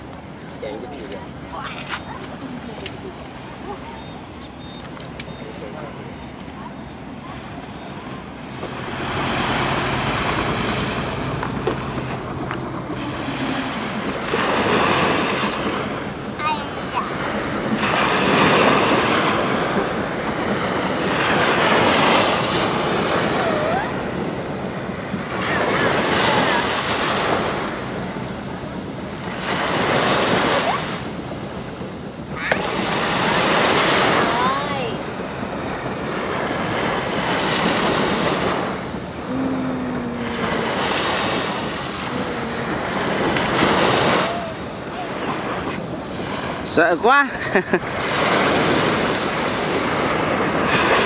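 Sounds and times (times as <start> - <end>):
small waves breaking on beach: 0.0 - 51.0
wind buffeting microphone: 6.8 - 46.6.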